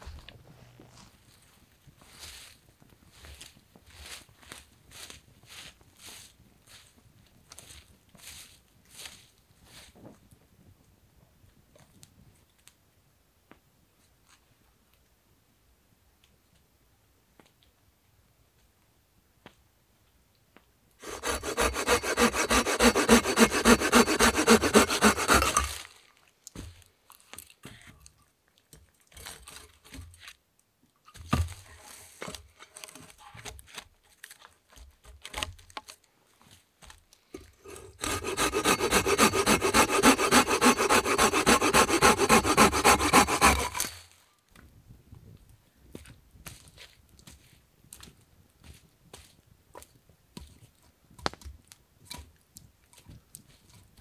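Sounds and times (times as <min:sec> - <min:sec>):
hand saw cutting log: 0:21.0 - 0:25.8, 0:37.4 - 0:44.0.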